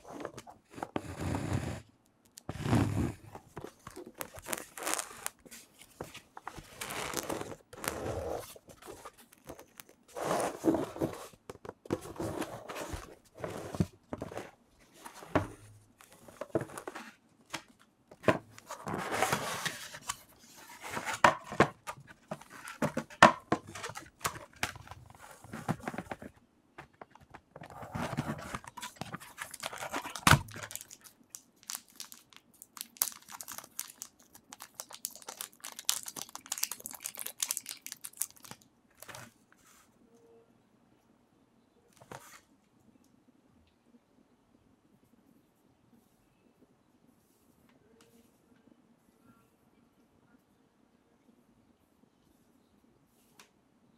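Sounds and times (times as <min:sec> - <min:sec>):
plastic packaging crinkling: 0:03.8 - 0:05.5, 0:28.1 - 0:39.2.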